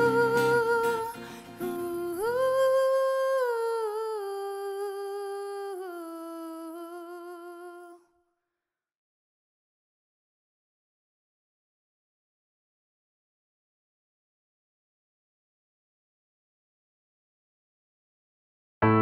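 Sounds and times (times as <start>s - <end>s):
acoustic guitar: 0.0s - 7.6s.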